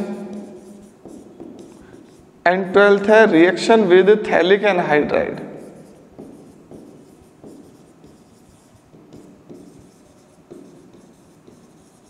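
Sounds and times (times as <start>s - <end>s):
pen scratching on paper: 0.0s - 2.3s, 5.6s - 12.0s.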